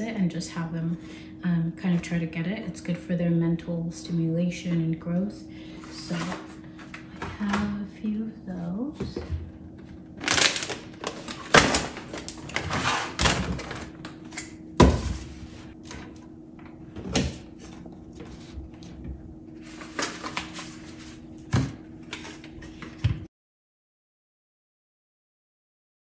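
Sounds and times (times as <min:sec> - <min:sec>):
steady low hum: 0:00.0 - 0:23.3
plastic packaging crinkling: 0:10.2 - 0:14.4, 0:19.6 - 0:21.2.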